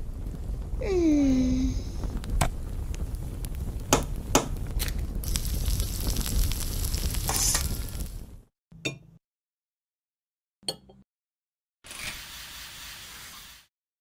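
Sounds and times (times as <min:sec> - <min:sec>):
low rumble: 0:00.0 - 0:08.4
egg sizzling in frying pan: 0:02.0 - 0:08.4, 0:11.9 - 0:13.7.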